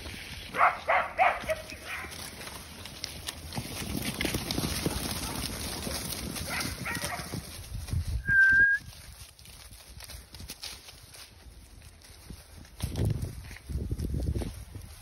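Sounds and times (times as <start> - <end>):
sheep and footsteps shuffling: 0.0 - 15.0
short high whistle: 8.2 - 8.9.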